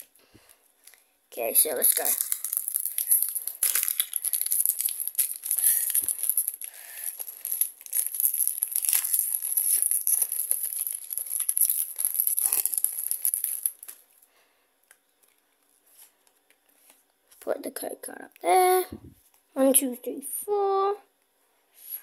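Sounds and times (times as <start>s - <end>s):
foil wrapper crinkling and tearing: 1.6s - 14.0s.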